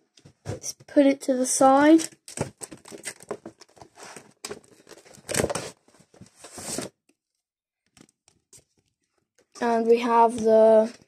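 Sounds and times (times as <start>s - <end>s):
card packaging rustling: 2.0s - 6.9s.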